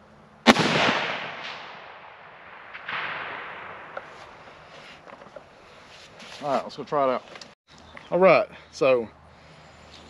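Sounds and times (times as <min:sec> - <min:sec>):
rifle shot crack: 0:00.4 - 0:04.4.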